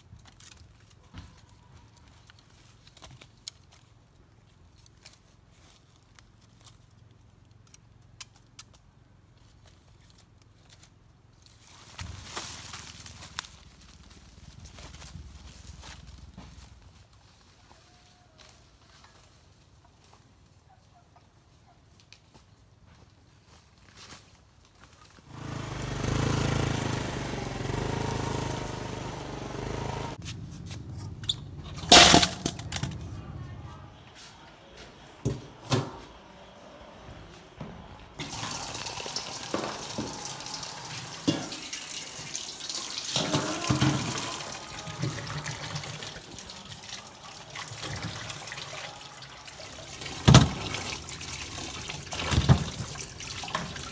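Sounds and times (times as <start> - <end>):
dry bamboo leaves crackling: 0.0 - 20.6, 23.1 - 31.0, 38.2 - 53.9
scooter engine running: 25.3 - 33.8.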